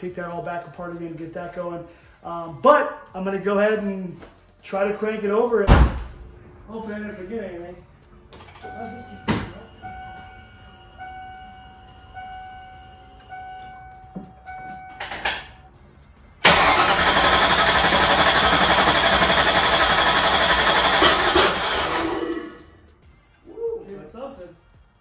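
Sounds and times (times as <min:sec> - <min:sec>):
electronic warning chime: 0:08.6 - 0:15.0
fuel pump whine: 0:16.0 - 0:22.9
starter cranking engine: 0:16.4 - 0:22.7.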